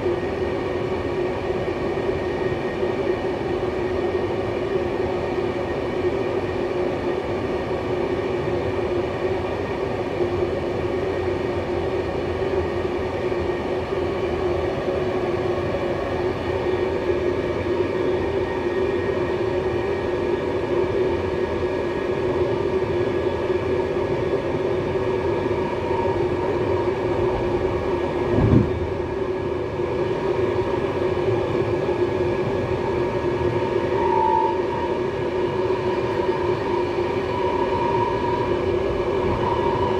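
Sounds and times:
train hum: 0.0 - 39.9
train wheels rolling on rails: 10.6 - 39.9.

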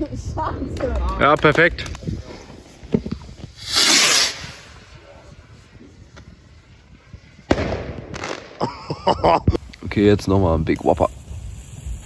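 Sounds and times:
firework hiss: 1.9 - 8.7, 9.6 - 12.0.

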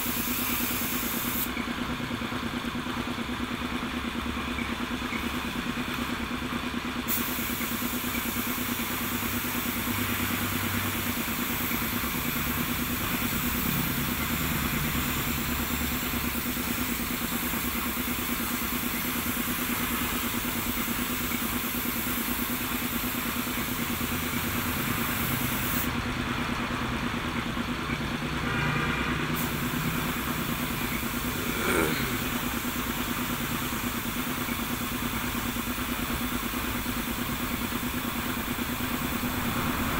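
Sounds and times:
paint spray gun hissing: 0.0 - 1.7, 7.0 - 26.0, 29.4 - 39.9
air compressor running: 0.0 - 39.9.

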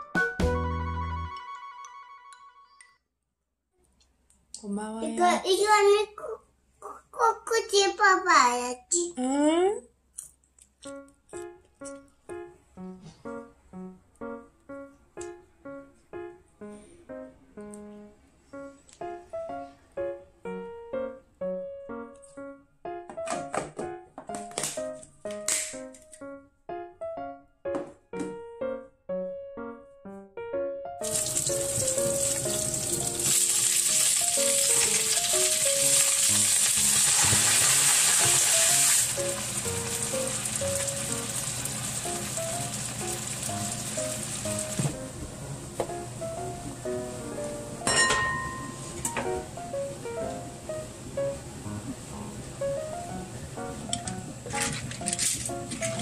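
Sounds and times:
light piano music: 0.0 - 2.9, 10.8 - 56.0
light keyboard tune: 0.0 - 3.0, 10.8 - 36.4, 42.1 - 56.0
food sizzling in a wok: 31.0 - 44.8.

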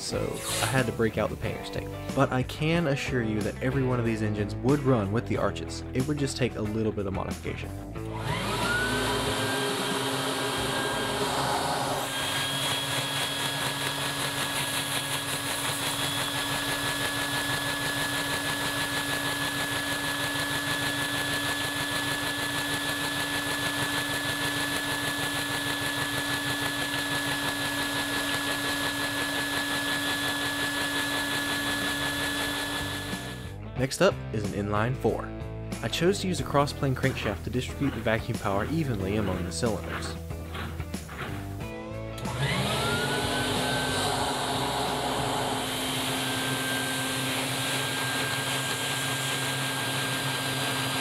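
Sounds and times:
vacuum cleaner motor whine: 8.0 - 33.5, 41.6 - 51.0.

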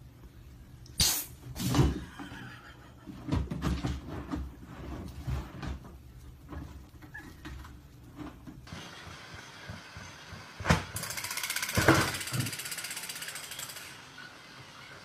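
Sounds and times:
toy motor ticking: 11.0 - 14.0.

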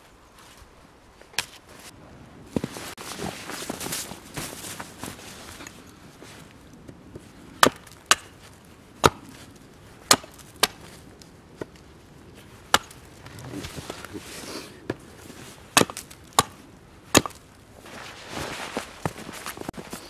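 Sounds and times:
hatchet chopping wood: 7.6 - 8.4, 9.0 - 9.3, 10.0 - 10.8, 12.7 - 13.0, 15.7 - 17.4.

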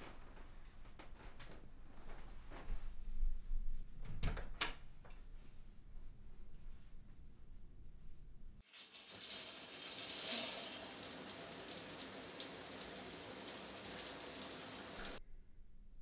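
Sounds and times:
water spraying from shower head: 8.6 - 15.2.

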